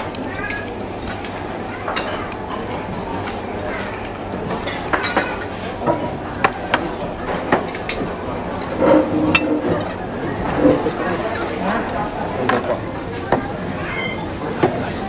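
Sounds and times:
background hubbub: 0.0 - 15.0
metal utensils clinking and scraping: 0.1 - 6.2, 7.2 - 11.4.

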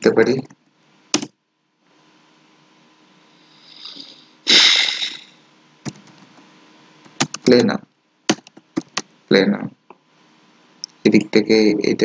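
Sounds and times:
loud sniff: 3.5 - 5.4
rush of breath: 3.6 - 5.4.

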